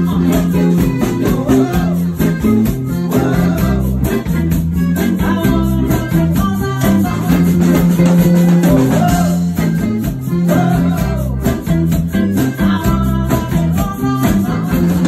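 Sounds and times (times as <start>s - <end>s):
woman singing: 0.0s - 4.2s, 5.0s - 7.9s, 12.3s - 15.0s
drums steady beat: 0.0s - 15.0s
electric bass low notes: 0.0s - 15.0s
guitar: 0.0s - 15.0s.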